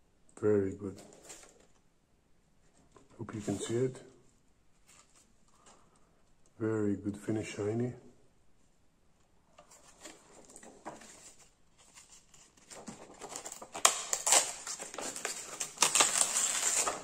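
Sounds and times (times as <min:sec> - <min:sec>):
plastic film rustling and crackling: 0:09.7 - 0:17.0.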